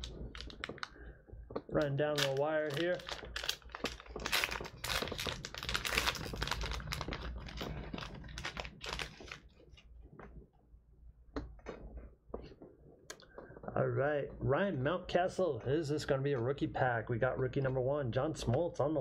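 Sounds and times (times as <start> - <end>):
plastic wrapper crinkling and tearing: 0.0 - 9.9.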